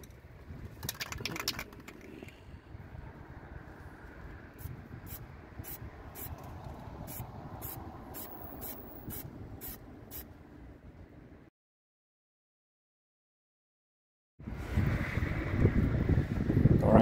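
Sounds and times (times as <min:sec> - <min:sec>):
wind rumbling on microphone: 0:00.0 - 0:11.4, 0:14.4 - 0:17.0
spray paint can hissing: 0:07.1 - 0:10.2.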